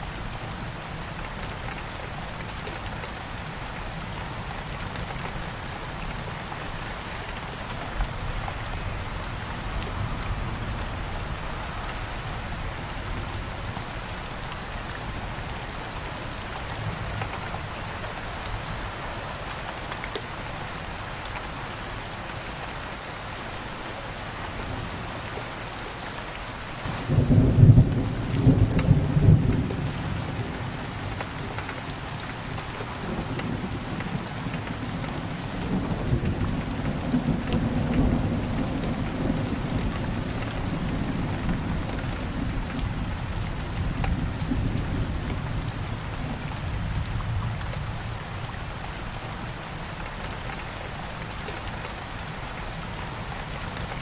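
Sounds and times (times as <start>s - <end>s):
heavy rain on window pane: 0.0s - 54.0s.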